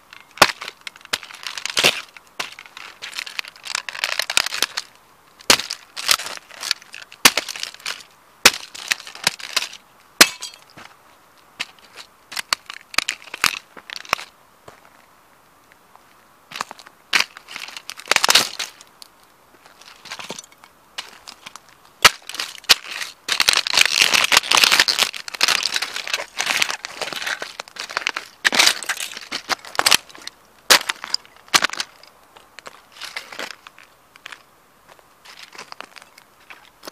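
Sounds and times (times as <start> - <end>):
plastic model car cracking underfoot: 0.3 - 9.8, 17.2 - 18.9, 19.9 - 32.0.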